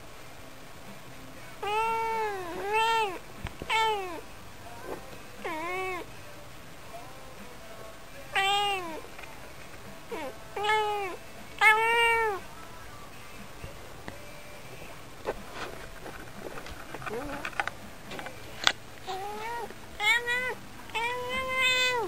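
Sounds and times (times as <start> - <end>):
cat meowing: 1.6 - 4.2, 5.4 - 6.1, 8.4 - 9.0, 10.1 - 12.4, 19.1 - 22.0.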